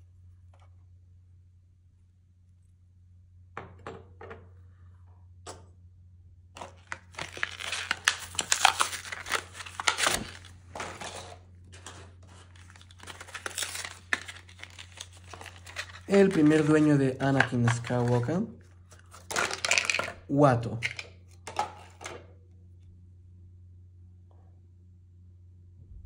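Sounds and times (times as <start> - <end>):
packaging crinkling and tearing: 6.6 - 21.0.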